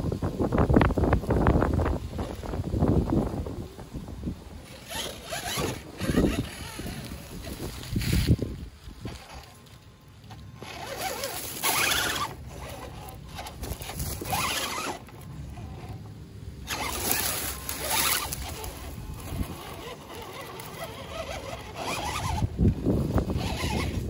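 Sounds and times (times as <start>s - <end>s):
toy car motor whirring: 4.6s - 24.0s.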